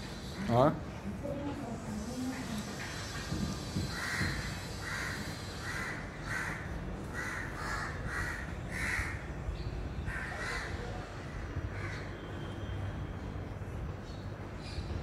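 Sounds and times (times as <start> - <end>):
crow cawing: 3.9 - 9.3, 10.1 - 10.8, 11.8 - 12.2.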